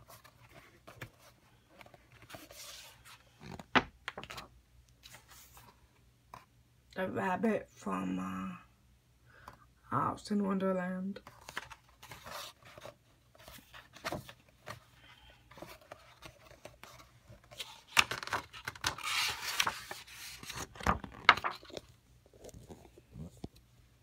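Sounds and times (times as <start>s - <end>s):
paper pages turning: 0.0s - 5.8s, 11.2s - 23.5s
paper rustling and flapping: 11.3s - 22.8s.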